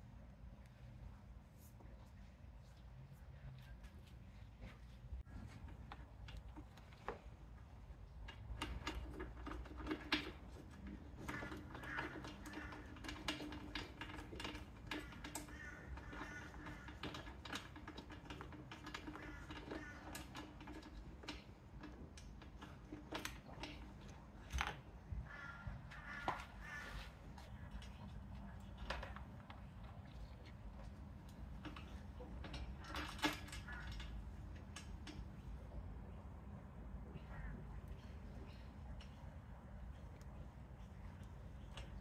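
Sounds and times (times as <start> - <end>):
hand tools clicking and knocking: 8.1 - 27.0, 30.8 - 35.4.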